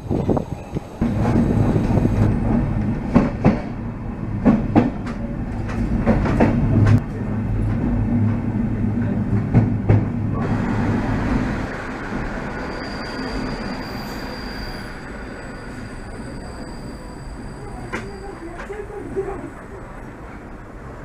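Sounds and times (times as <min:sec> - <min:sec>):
train wheels clicking over rail joints: 0:04.4 - 0:08.5.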